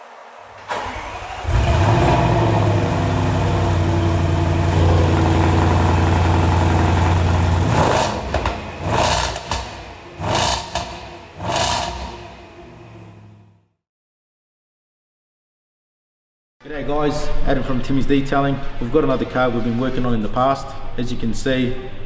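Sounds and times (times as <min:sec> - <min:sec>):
car engine starting and idling: 0:00.0 - 0:13.6.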